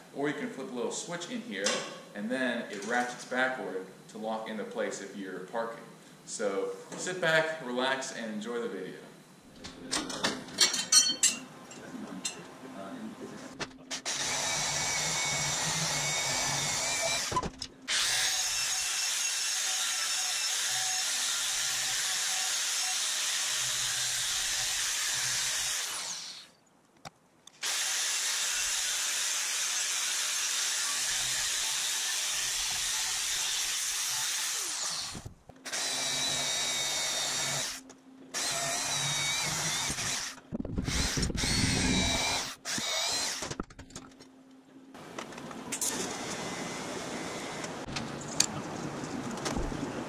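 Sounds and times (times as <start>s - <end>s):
angle grinder cutting metal tube: 13.9s - 26.5s, 27.6s - 37.8s.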